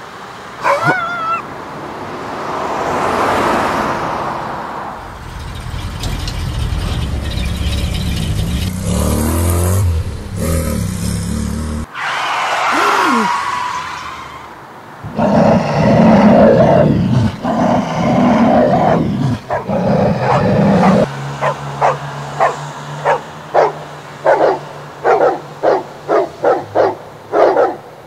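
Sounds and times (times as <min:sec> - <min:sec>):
dog barking: 0:00.6 - 0:01.4, 0:18.7 - 0:27.8
animal growling: 0:08.4 - 0:11.9, 0:15.0 - 0:21.1.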